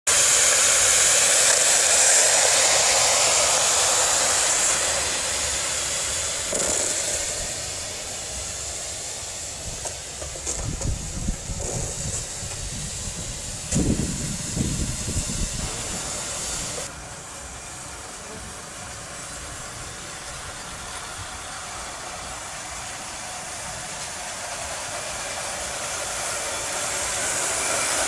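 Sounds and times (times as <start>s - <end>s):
steam hissing: 0.1s - 28.0s
wagon wheels knocking on rails: 6.4s - 7.5s, 9.7s - 14.0s.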